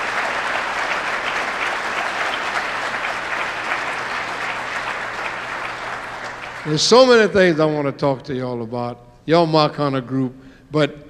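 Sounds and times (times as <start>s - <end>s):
large audience applauding: 0.0s - 7.4s.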